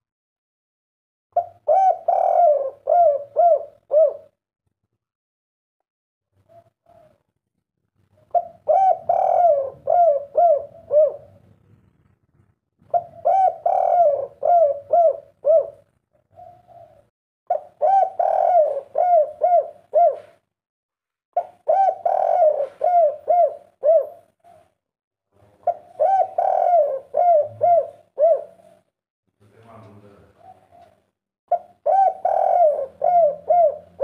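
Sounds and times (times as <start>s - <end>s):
dove cooing: 1.4s - 4.4s, 6.4s - 7.3s, 8.2s - 12.0s, 12.8s - 20.4s, 21.4s - 24.8s, 25.4s - 28.9s, 30.3s - 34.0s.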